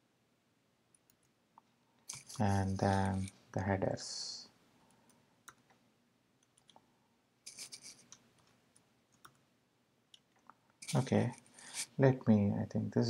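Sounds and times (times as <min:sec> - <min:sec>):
faint keyboard typing: 0:00.9 - 0:03.4, 0:04.8 - 0:05.8, 0:06.4 - 0:06.9, 0:07.5 - 0:09.5.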